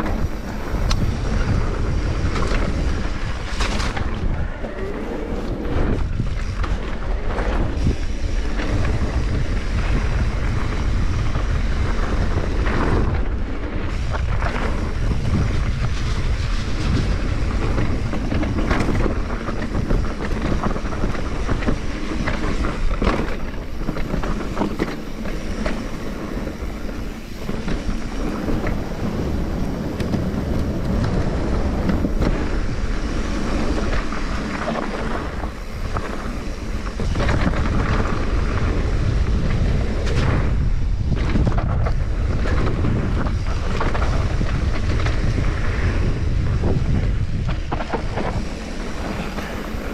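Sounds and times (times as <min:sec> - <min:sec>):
bike rattling over bumps: 0:00.0 - 0:49.9
tyres running over dirt: 0:00.0 - 0:49.9
wind buffeting microphone: 0:00.0 - 0:49.9.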